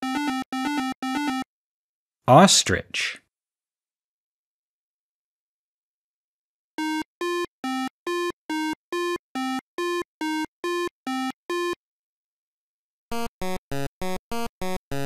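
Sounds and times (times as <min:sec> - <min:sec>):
chiptune synth beeps: 0:00.0 - 0:01.4.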